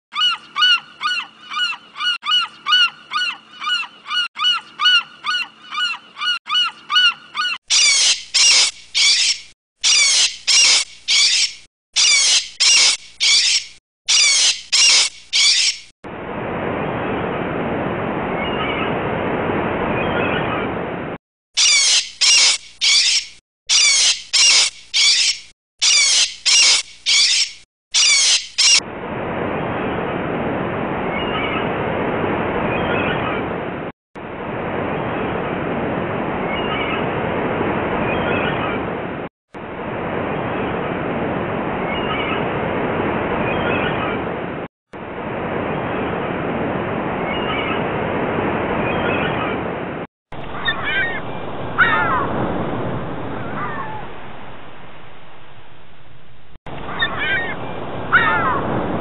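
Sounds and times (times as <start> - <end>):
gulls calling: 0.1 - 15.9, 21.6 - 28.8, 48.8 - 55.5, 56.7 - 59.0
steady rushing noise: 49.9 - 59.0.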